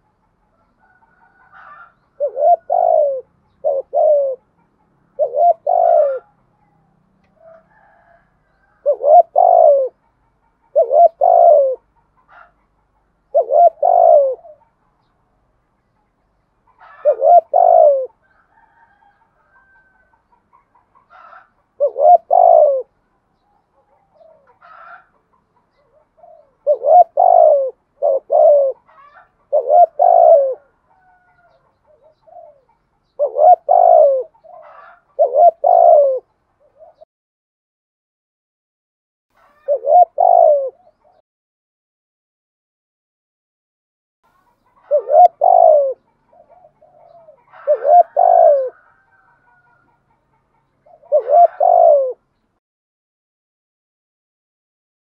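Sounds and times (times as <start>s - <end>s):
dove cooing: 0.8s - 14.8s, 16.6s - 37.0s, 39.4s - 41.2s, 44.4s - 52.3s
small birds chirping: 19.6s - 37.1s, 44.3s - 52.6s.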